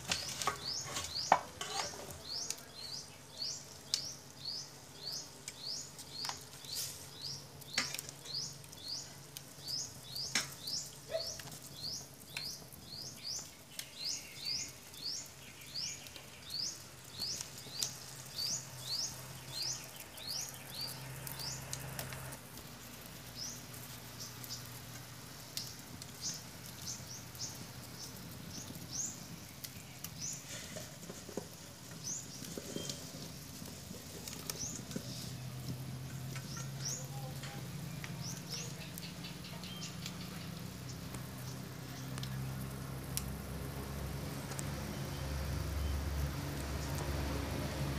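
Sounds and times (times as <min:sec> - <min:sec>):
small bird chirping: 0:00.2 - 0:22.2, 0:25.6 - 0:30.6, 0:34.2 - 0:42.7.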